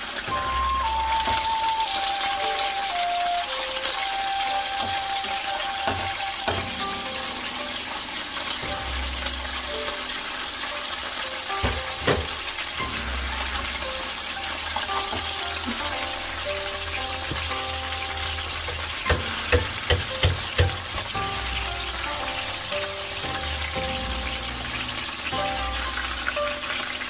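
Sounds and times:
food sizzling in hot oil: 0:00.0 - 0:27.0
soft background music: 0:00.0 - 0:27.0
sharp knocks: 0:18.7 - 0:21.2.

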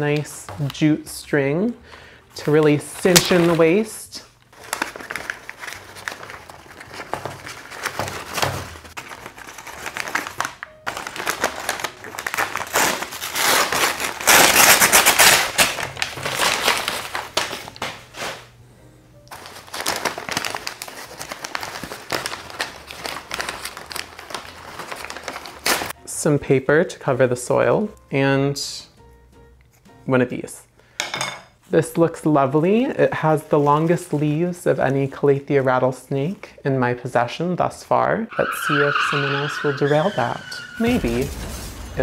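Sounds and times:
paper wrapping crinkling: 0:02.4 - 0:18.5, 0:19.3 - 0:26.0.

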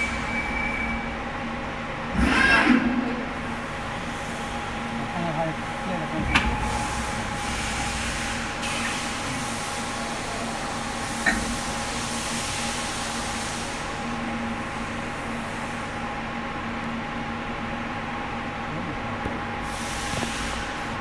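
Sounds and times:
machinery hum with held tones: 0:00.0 - 0:21.0
hiss: 0:06.7 - 0:14.2, 0:19.6 - 0:21.0.

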